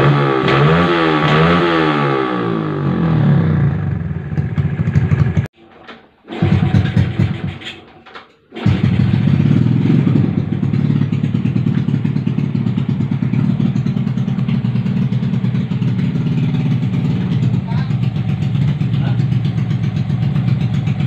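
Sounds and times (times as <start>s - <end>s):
motorcycle engine idling: 3.1s - 5.5s, 8.6s - 21.0s.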